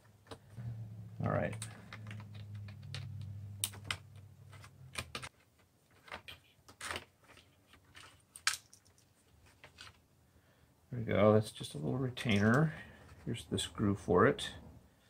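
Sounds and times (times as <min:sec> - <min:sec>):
low steady hum: 0:00.3 - 0:05.3
hands handling plastic case: 0:01.4 - 0:10.1.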